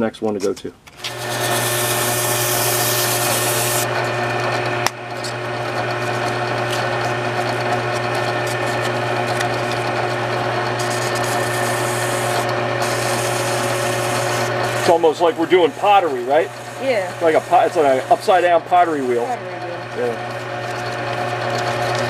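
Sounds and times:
drill press motor hum: 1.0s - 22.0s
sandpaper rasping on wood: 10.8s - 16.6s, 17.2s - 19.2s.

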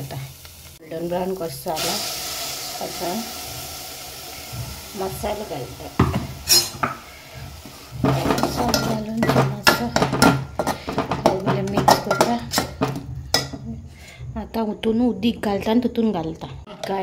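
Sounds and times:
metal spoon scraping a pot: 6.3s - 14.2s.

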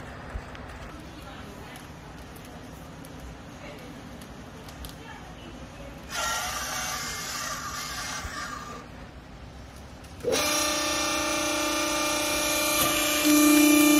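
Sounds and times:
hydraulic baler motor and pump: 6.0s - 8.9s, 9.9s - 13.9s.

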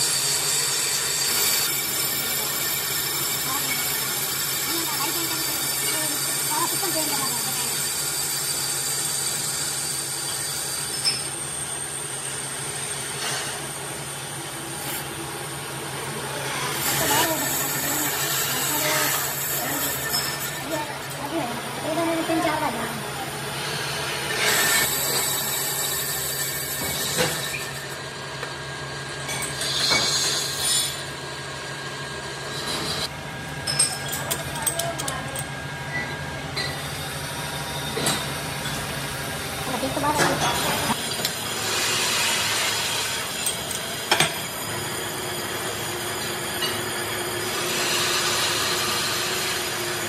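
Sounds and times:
high metallic screech: 0.0s - 11.9s, 16.5s - 21.2s, 23.6s - 28.0s, 29.3s - 31.1s
metal lathe machining: 0.0s - 50.0s.

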